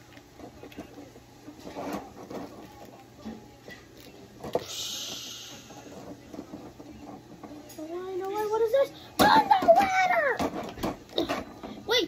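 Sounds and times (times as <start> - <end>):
short hiss: 4.6 - 5.7
plastic toys clicking and clacking: 5.9 - 12.0.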